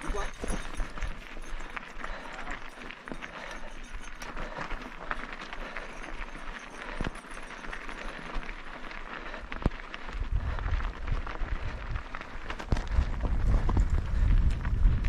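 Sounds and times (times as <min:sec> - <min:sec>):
bike clicks and rattles: 0:00.0 - 0:15.0
bike tyres crunching on gravel: 0:00.0 - 0:15.0
wind rumble on microphone: 0:09.6 - 0:15.0.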